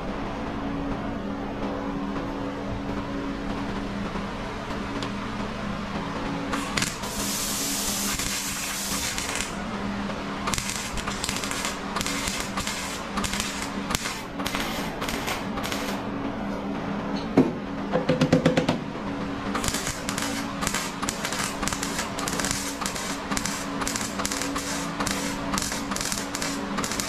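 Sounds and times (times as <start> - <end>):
low hum: 0.0 - 18.1, 18.8 - 27.0
welding crackle: 6.5 - 9.7, 10.4 - 16.0, 19.5 - 27.0.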